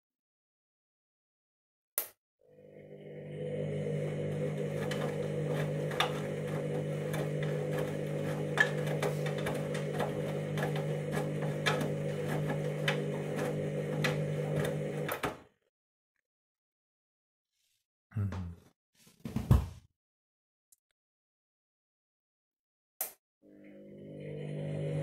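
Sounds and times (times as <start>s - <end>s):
washing machine motor hum: 2.4s - 15.4s, 23.5s - 25.0s.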